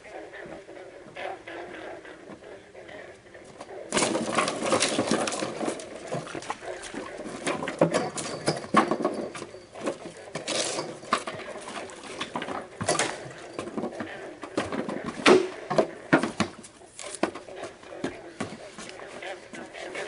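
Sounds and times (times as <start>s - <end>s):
rustling and crackling in brush: 0.0s - 8.0s.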